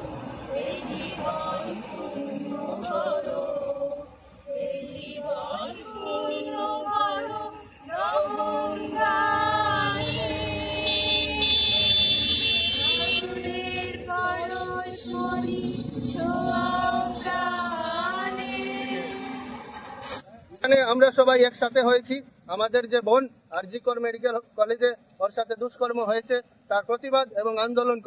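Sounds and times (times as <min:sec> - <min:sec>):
group singing unaccompanied: 0:00.0 - 0:20.2.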